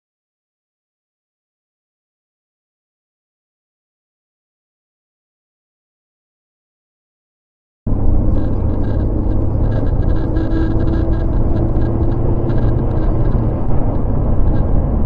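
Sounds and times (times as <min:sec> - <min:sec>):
faint steady tone: 0:07.9 - 0:14.8
car road and engine rumble: 0:07.9 - 0:15.0.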